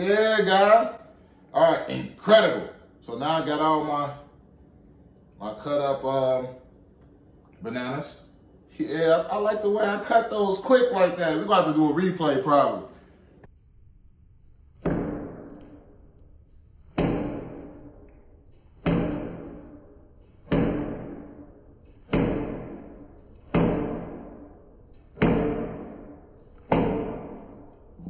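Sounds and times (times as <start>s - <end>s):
slowed knife chops on board: 16.8s - 17.9s, 18.7s - 19.8s, 20.4s - 24.5s, 25.1s - 27.6s.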